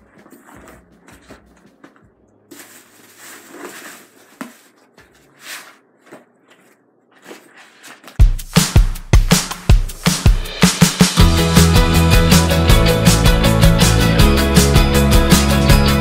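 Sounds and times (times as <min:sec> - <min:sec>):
bags rustling and knocking: 0:00.0 - 0:08.4.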